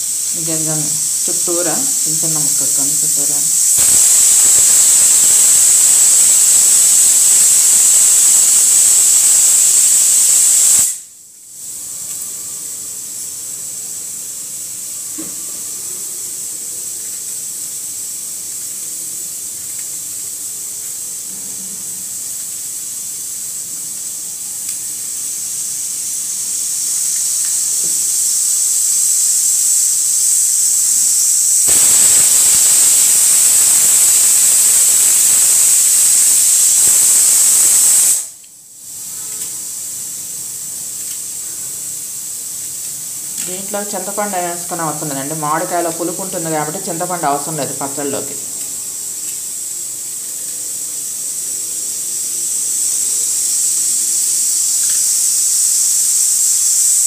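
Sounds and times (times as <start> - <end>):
steam hissing: 0.0 - 57.0.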